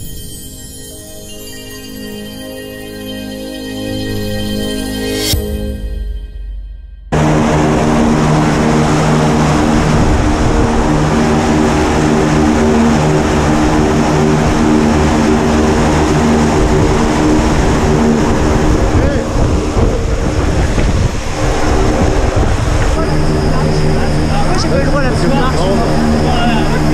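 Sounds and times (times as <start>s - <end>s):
propeller plane engine droning: 7.0s - 26.9s.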